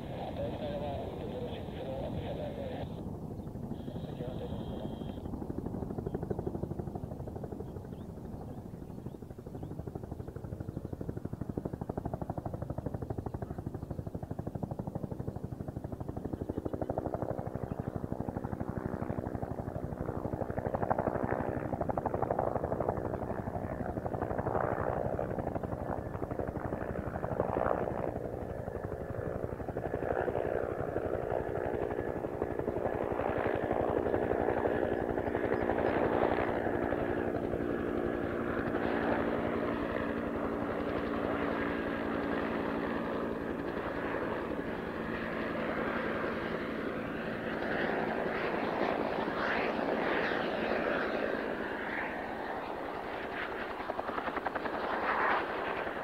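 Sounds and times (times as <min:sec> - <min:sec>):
turbine whine: 0:00.0 - 0:05.4
helicopter rotor beating: 0:00.0 - 0:56.0.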